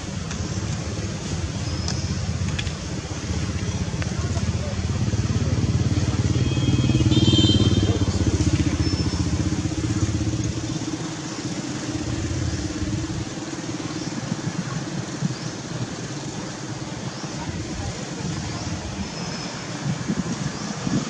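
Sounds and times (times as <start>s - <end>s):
vehicle engine humming: 0.0s - 21.0s.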